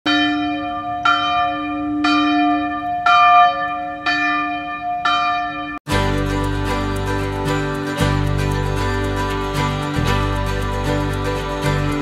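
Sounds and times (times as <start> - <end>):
church bell tolling: 0.1 - 12.0
guitar music: 5.9 - 12.0.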